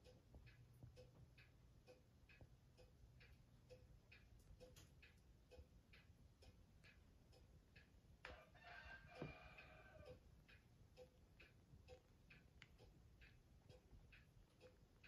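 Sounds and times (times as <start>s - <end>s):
clock ticking: 0.0s - 15.0s
rooster crowing: 8.3s - 10.2s.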